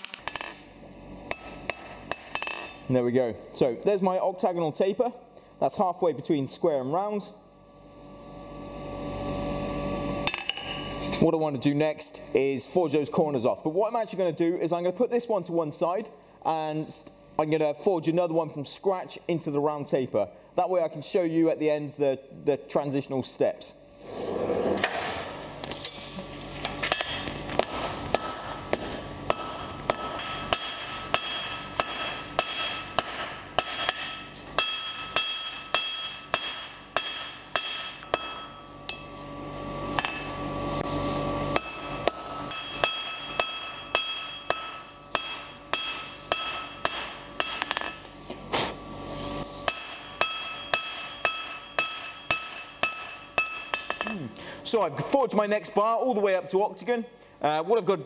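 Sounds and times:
hammer striking hot steel: 1.2s - 2.8s, 10.2s - 11.0s, 26.8s - 39.2s, 40.0s - 40.4s, 41.5s - 48.1s, 49.6s - 54.1s
anvil ringing: 29.3s - 39.1s, 41.6s - 48.0s, 49.7s - 54.1s.

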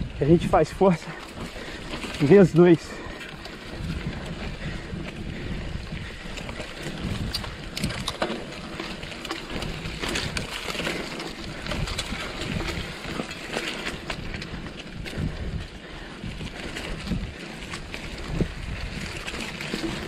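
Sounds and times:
bike rattling over bumps: 0.0s - 20.0s
bike tyres rolling on dirt: 0.0s - 20.0s
wind noise on microphone: 0.0s - 20.0s.

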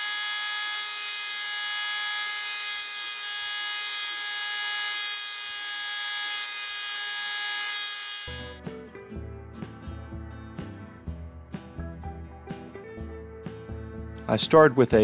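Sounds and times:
rotary tool whine: 0.0s - 8.6s.

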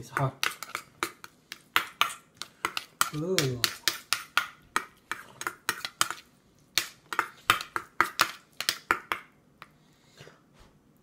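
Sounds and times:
spoons scraping metal bowl: 0.4s - 8.8s.

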